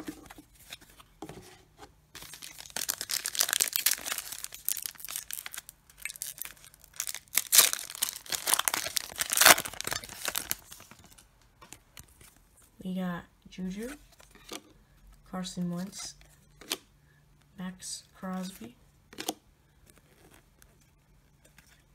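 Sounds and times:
foil wrapper tearing and crinkling: 0:02.2 - 0:11.2.

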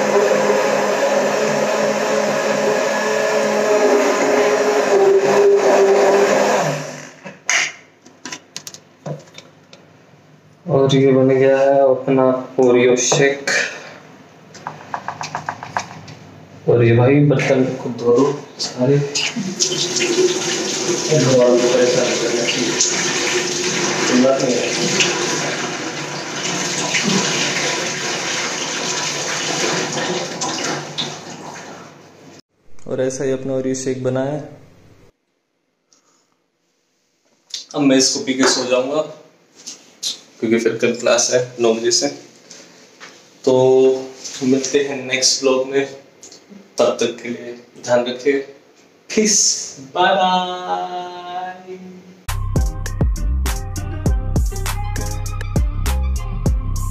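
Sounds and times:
hand blender whirring: 0:00.0 - 0:07.2
water running from a tap: 0:19.3 - 0:31.9.

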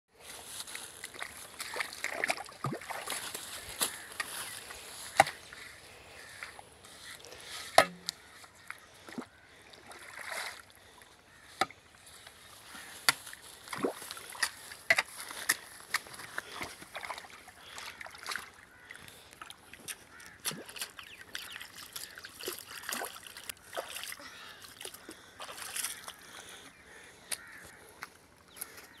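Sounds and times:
water sloshing: 0:00.6 - 0:26.6
hoe chopping wet mud: 0:05.1 - 0:05.4, 0:07.7 - 0:08.2, 0:13.0 - 0:17.3, 0:19.9 - 0:21.9.

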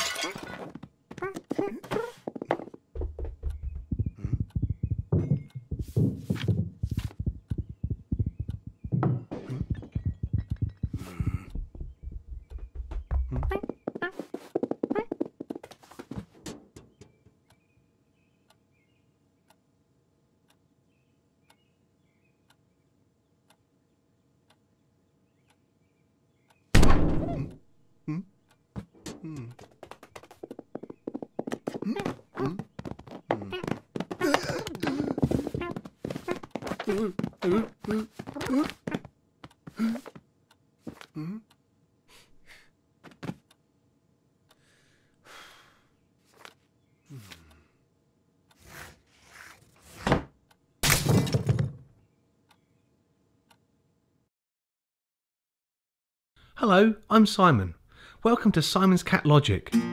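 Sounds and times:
clock ticking: 0:03.4 - 0:06.0, 0:06.8 - 0:13.6
cartoon vocal grunt: 0:28.1 - 0:28.3, 0:36.9 - 0:38.8, 0:41.2 - 0:41.5.

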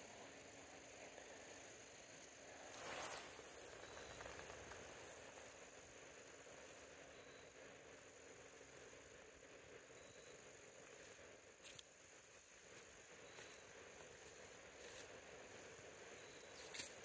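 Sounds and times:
high insect trill: 0:00.0 - 0:17.0.

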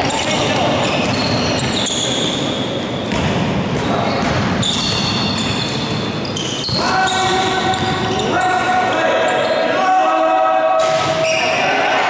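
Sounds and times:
players' voices: 0:00.0 - 0:02.4, 0:06.5 - 0:12.0
sneakers squeaking on court: 0:00.0 - 0:08.6, 0:09.3 - 0:09.7, 0:10.9 - 0:11.6
ball bouncing: 0:03.0 - 0:06.8.

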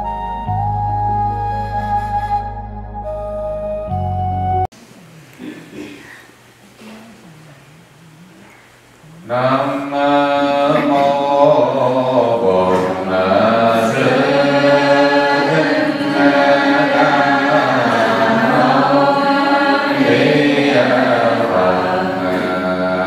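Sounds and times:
man chanting into a microphone: 0:09.2 - 0:15.9.

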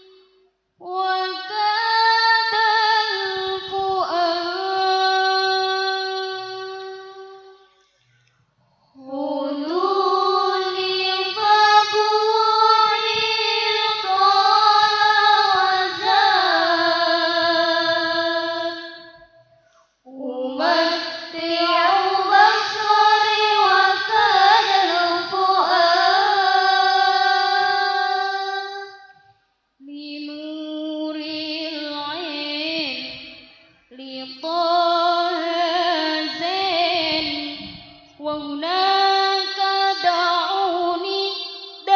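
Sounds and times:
girls singing in unison: 0:00.8 - 0:07.2, 0:09.0 - 0:19.3, 0:20.1 - 0:29.0, 0:33.9 - 0:41.9.

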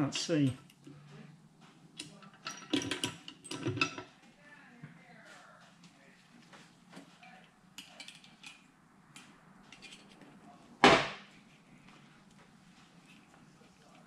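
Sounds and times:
metal parts clicking and tapping: 0:02.0 - 0:04.1.

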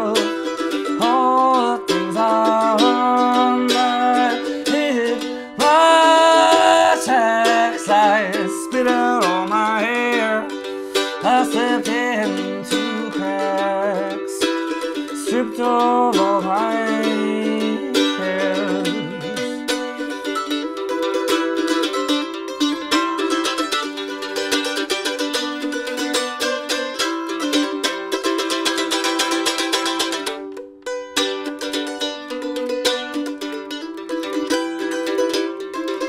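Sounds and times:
man singing: 0:00.0 - 0:20.1
mandolin strumming: 0:00.0 - 0:36.0.

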